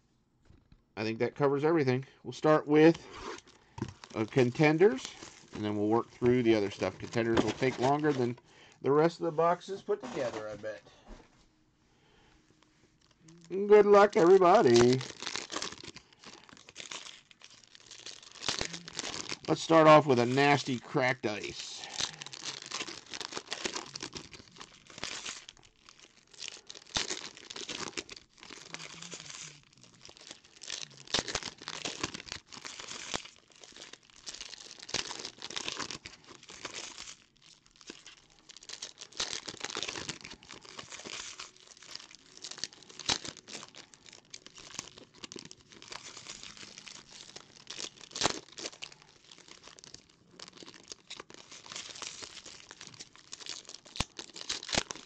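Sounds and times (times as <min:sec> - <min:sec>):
foil wrappers crinkling: 0:02.3 - 0:08.4, 0:09.3 - 0:10.8, 0:12.6 - 0:55.0
foil ripping and crackling: 0:02.7 - 0:08.4, 0:13.0 - 0:55.0.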